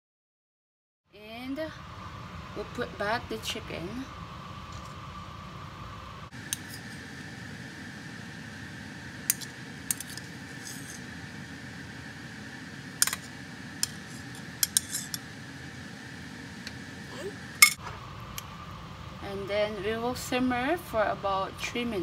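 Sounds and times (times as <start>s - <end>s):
steady background hum: 1.1s - 22.0s
utensils clinking against skillet: 9.3s - 11.1s, 13.0s - 15.3s, 17.6s - 17.8s.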